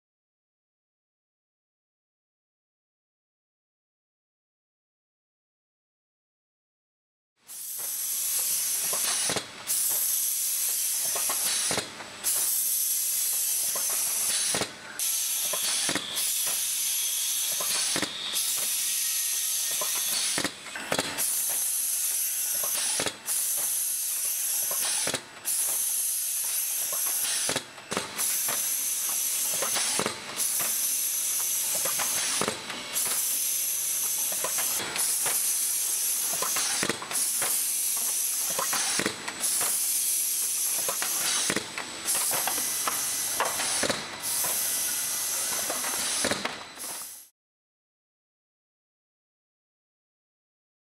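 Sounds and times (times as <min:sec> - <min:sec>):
machine hissing: 0:07.5 - 0:47.3.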